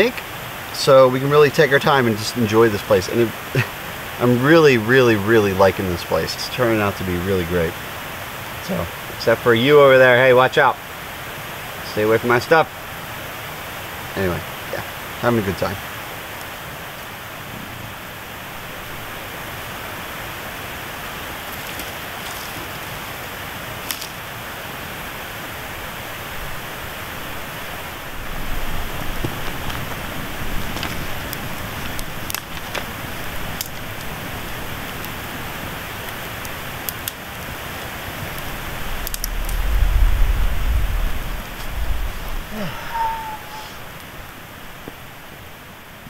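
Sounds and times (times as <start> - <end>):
fire hiss: 0.0 - 45.8
campfire crackling and popping: 11.8 - 19.8, 20.9 - 24.4, 28.0 - 45.4
low rumble: 38.5 - 44.0.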